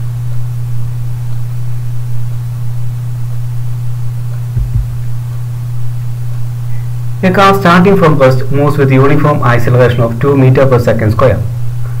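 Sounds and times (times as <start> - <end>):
low electrical hum: 0.0 - 12.0
low thump: 4.6 - 5.1.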